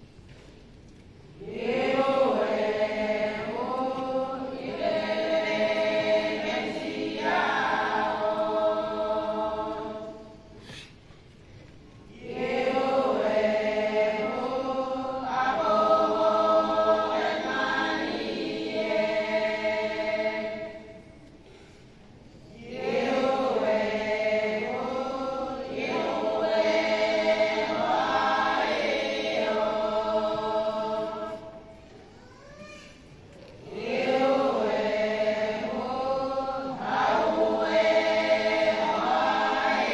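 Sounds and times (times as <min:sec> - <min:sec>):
women's choir singing a hymn: 0:01.3 - 0:10.6, 0:12.0 - 0:21.6, 0:22.3 - 0:31.9, 0:33.6 - 0:39.9.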